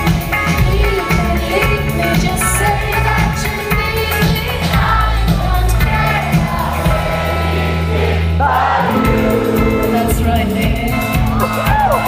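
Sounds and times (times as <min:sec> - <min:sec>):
live pop-rock band: 0:00.0 - 0:12.0
woman singing: 0:00.1 - 0:06.6, 0:09.0 - 0:12.0.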